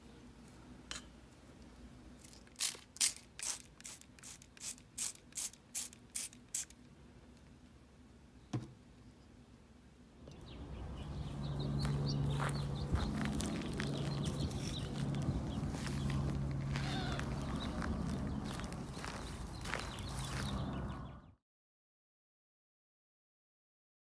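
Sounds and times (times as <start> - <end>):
steady background noise: 0.0 - 21.2
spray bottle squirts: 2.3 - 6.8.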